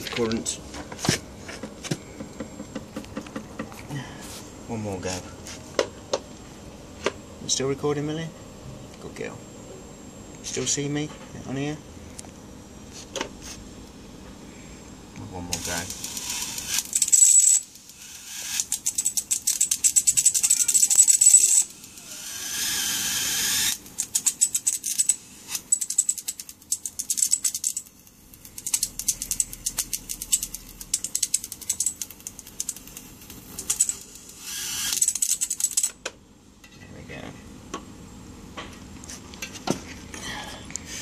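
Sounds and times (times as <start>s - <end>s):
hissing electric arc: 15.4s - 25.7s
electric arc crackling snaps: 15.5s - 17.1s, 26.2s - 34.2s.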